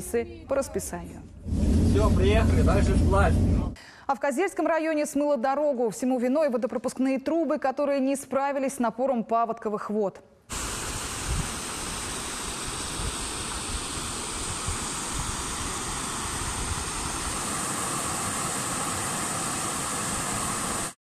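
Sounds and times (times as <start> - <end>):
floodwater rushing through pipes: 10.5 - 21.0.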